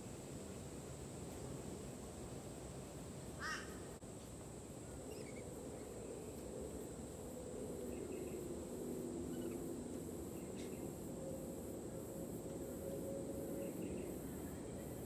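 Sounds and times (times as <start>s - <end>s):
faint bird chirps: 5.0s - 6.4s.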